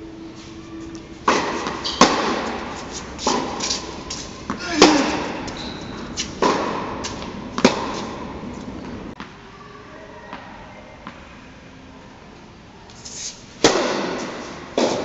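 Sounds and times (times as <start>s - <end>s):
tennis ball hit by racket: 1.3s - 5.6s, 6.2s - 9.0s, 13.6s - 15.0s
ball bouncing on hard court: 1.3s - 9.4s.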